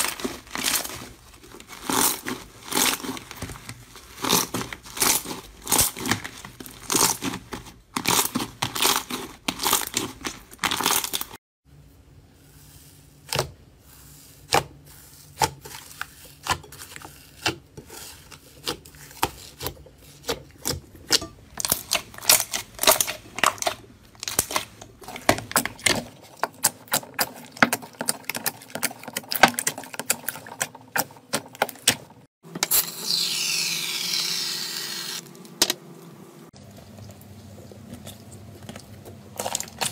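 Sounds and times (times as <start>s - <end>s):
slime crackling and squishing: 0.0s - 11.4s, 12.9s - 32.2s, 37.8s - 39.9s.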